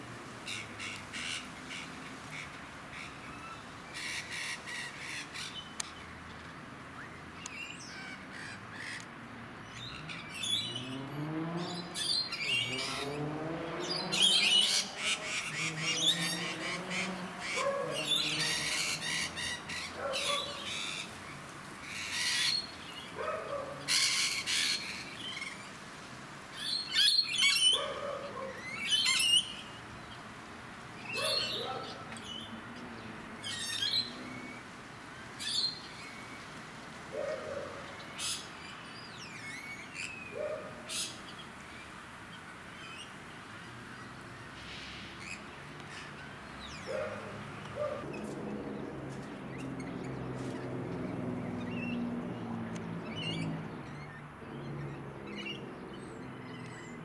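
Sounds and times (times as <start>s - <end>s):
lorikeets screeching: 11.6s - 25.7s, 26.6s - 29.8s, 31.0s - 32.6s, 33.4s - 34.6s.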